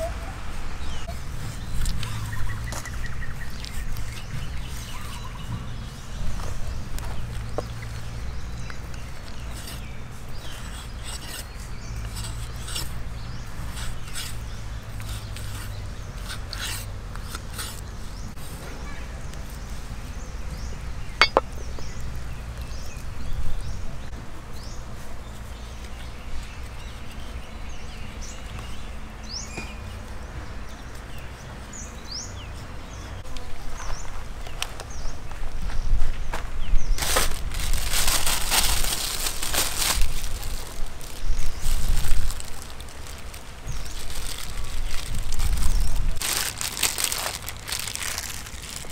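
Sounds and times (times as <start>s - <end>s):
cleaver cutting and scraping chicken: 1.4s - 18.7s.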